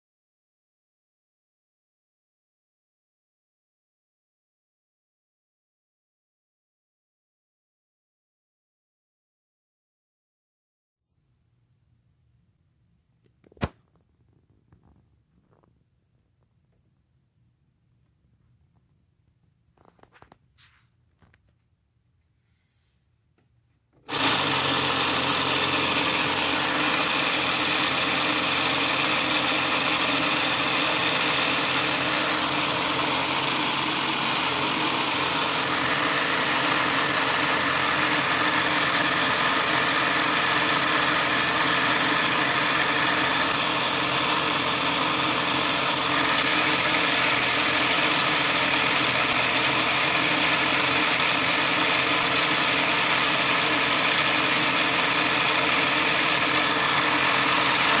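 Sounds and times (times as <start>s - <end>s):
model engine mechanical hum: 24.0s - 58.0s.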